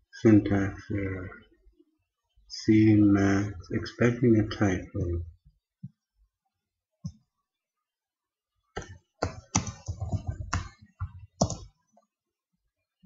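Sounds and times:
typing on computer keyboard: 8.8s - 10.8s, 11.4s - 11.7s.

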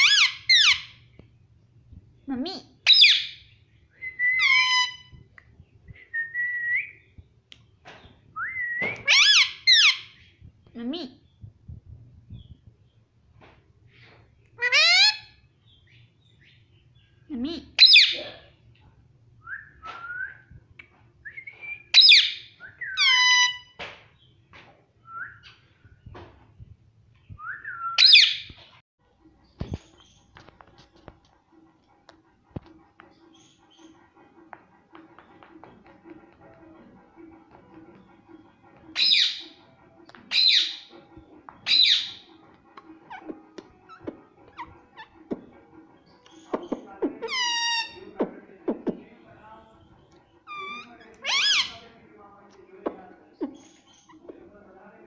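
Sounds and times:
parakeet whistling: 2.9s - 3.4s, 21.4s - 23.7s, 27.4s - 28.5s, 40.3s - 40.9s, 41.6s - 42.3s
parakeet harsh squawks: 9.0s - 10.1s, 14.6s - 15.3s, 17.8s - 18.2s, 23.0s - 23.8s, 40.3s - 40.9s, 41.6s - 42.3s, 50.5s - 51.8s.

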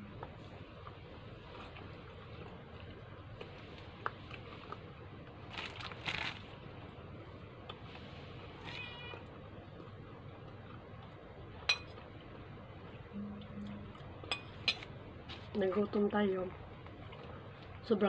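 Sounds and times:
steady low hum: 0.0s - 18.0s
fork clinking on plate: 11.7s - 12.0s.

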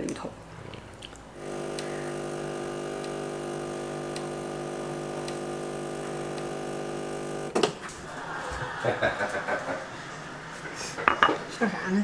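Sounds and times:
espresso machine pump humming: 1.4s - 7.6s.

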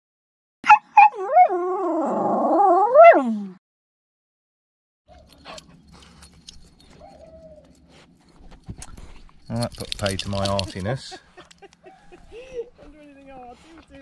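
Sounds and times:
dog crying: 0.6s - 3.4s
dog whining: 0.6s - 3.6s, 6.8s - 7.9s.

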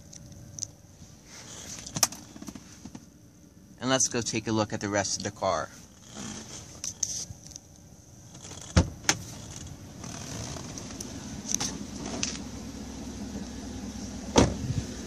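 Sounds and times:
car engine idling: 0.0s - 15.0s
car door latch clunk: 8.4s - 12.4s, 14.3s - 14.7s.

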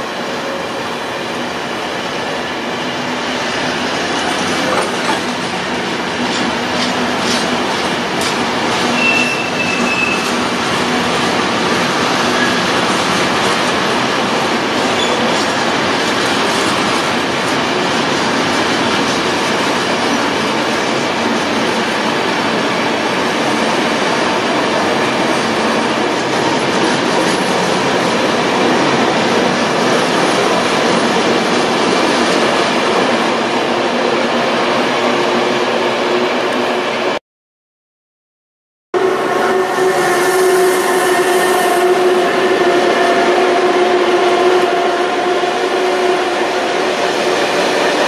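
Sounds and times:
train wheels rolling on rails: 0.0s - 35.4s.

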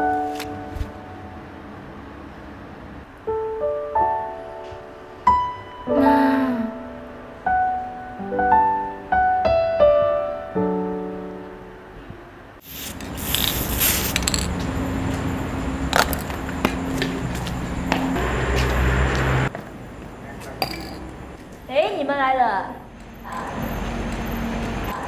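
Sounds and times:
spray-paint can hissing: 12.6s - 14.5s
spray-paint can rattling: 12.6s - 14.6s.

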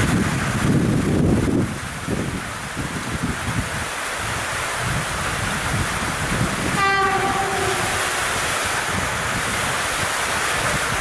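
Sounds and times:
steady rushing noise: 0.0s - 11.0s
locomotive horn blast: 6.7s - 8.6s.

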